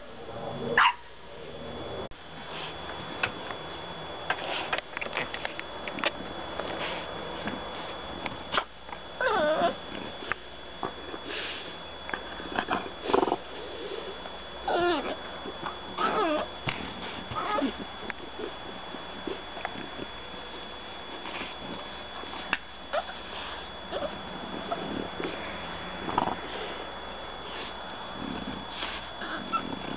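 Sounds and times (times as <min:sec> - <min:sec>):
dogs whining and grumbling: 0:06.0 - 0:29.9
dog snuffling: 0:06.6 - 0:08.0.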